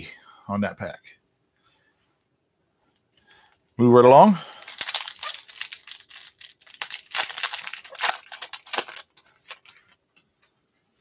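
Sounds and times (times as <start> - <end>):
cards ticking: 4.5 - 9.9
foil wrapper tearing and crackling: 4.5 - 9.9.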